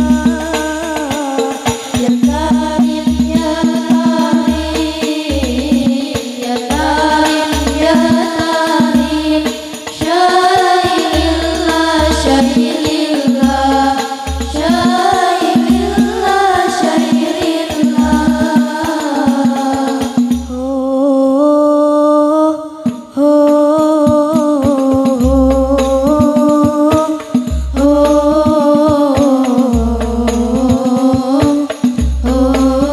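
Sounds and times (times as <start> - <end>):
girls singing into microphones: 0.0 - 32.9
deep bass beat: 27.5 - 28.5.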